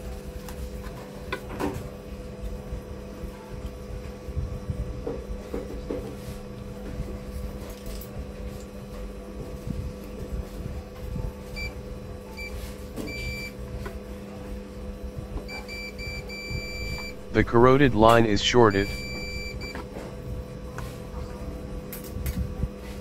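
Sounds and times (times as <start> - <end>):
multimeter beeping: 15.7 - 17.3, 18.8 - 19.7
low hum: 16.5 - 19.6.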